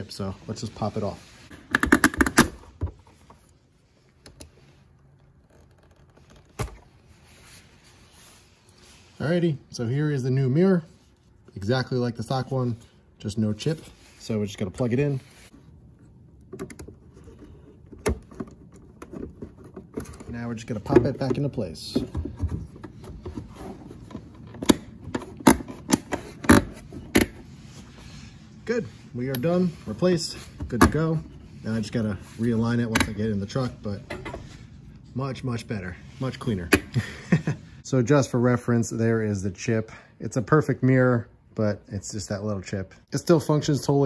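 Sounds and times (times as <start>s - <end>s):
light scraping and handling: 2.6s - 36.8s.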